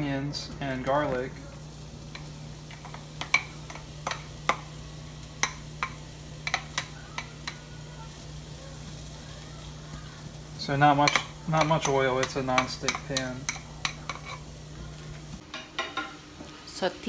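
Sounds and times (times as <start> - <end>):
onion sizzling in oil: 0.0 - 17.0
spatula tapping and scraping bowl: 11.0 - 14.4.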